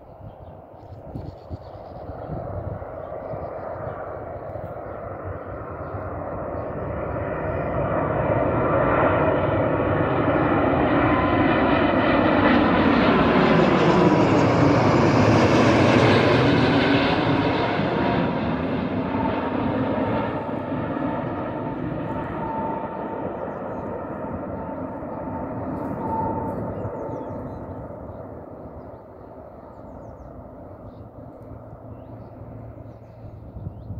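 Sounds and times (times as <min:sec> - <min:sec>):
airliner passing overhead: 0:00.0 - 0:33.9.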